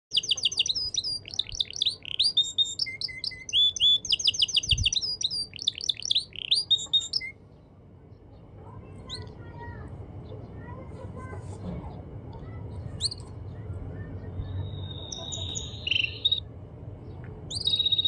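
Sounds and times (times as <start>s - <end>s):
canary singing trills and whistles: 0.1s - 7.4s, 9.0s - 9.3s, 13.0s - 16.5s, 17.5s - 18.0s.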